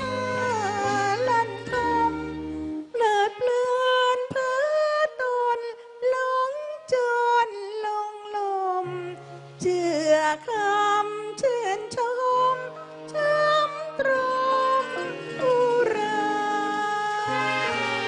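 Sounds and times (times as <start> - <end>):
woman singing: 0.0 - 18.0
light accompaniment: 7.5 - 18.0.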